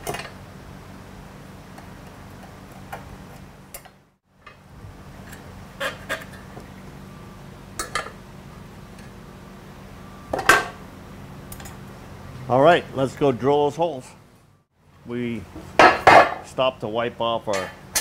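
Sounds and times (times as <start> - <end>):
low shop hum: 0.0 - 18.0.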